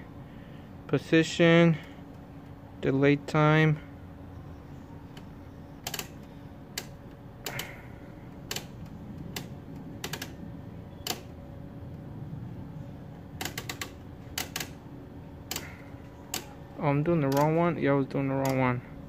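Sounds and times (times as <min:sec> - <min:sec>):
steady low hum: 0:00.0 - 0:19.0
oscilloscope knobs and switches clicking: 0:04.3 - 0:12.0, 0:13.1 - 0:18.9.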